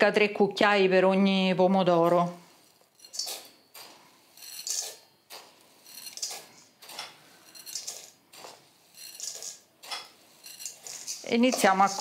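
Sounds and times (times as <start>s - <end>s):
spoon scooping rice into metal bowl: 3.0s - 12.0s.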